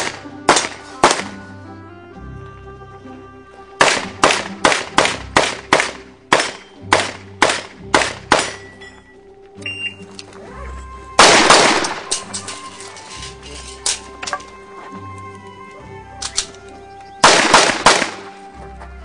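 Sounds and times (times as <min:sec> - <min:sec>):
rapid handgun shots: 0:00.0 - 0:01.4, 0:03.8 - 0:08.6, 0:11.2 - 0:12.2, 0:17.2 - 0:18.3
background music: 0:00.0 - 0:19.0.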